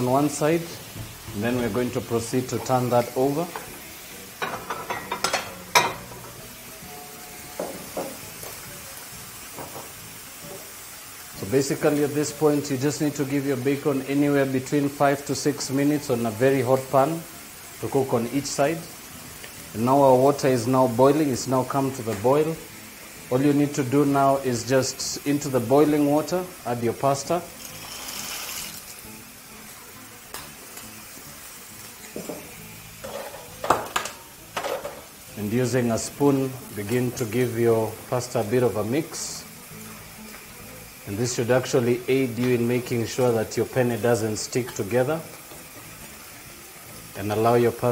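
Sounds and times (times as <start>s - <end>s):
bacon sizzling in frying pan: 0.0s - 47.9s
utensils knocking against pan: 4.4s - 6.4s, 7.6s - 8.2s, 32.2s - 35.1s
water boiling in a pot: 27.5s - 29.0s.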